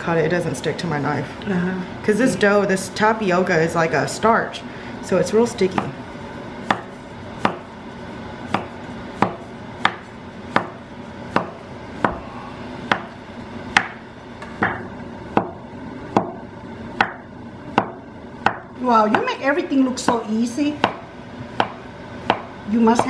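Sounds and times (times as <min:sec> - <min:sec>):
cleaver chopping dough on board: 0:05.6 - 0:06.0, 0:06.6 - 0:07.7, 0:08.4 - 0:12.2, 0:12.8 - 0:14.0, 0:14.6 - 0:16.4, 0:17.0 - 0:19.3, 0:20.0 - 0:23.0.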